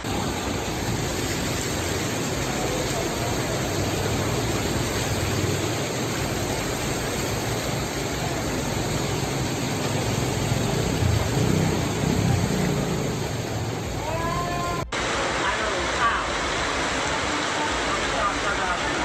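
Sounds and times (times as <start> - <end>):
vehicle engine humming: 0.0 - 14.0
water rushing: 0.0 - 19.0.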